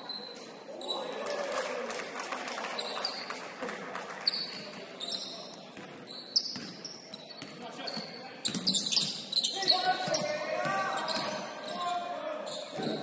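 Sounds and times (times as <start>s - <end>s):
sneaker squeaks: 0.0s - 1.1s, 2.8s - 3.3s, 4.2s - 13.0s
players' voices: 6.6s - 13.0s.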